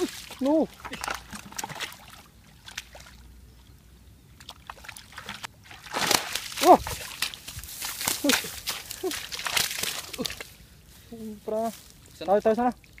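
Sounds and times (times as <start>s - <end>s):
splashes in muddy puddle: 0.0s - 3.3s, 4.4s - 10.6s.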